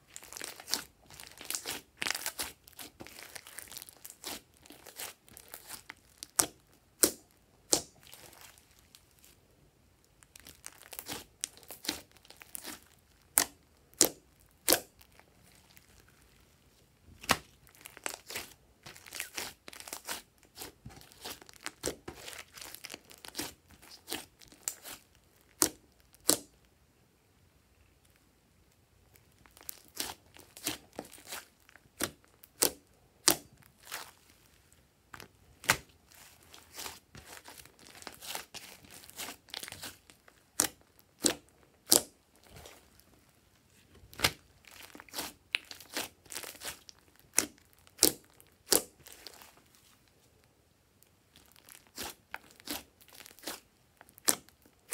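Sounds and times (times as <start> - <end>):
sticky slime pops and crackles: 5.6 - 8.2, 17.2 - 26.6, 40.6 - 42.6, 44.1 - 49.2, 51.6 - 54.9.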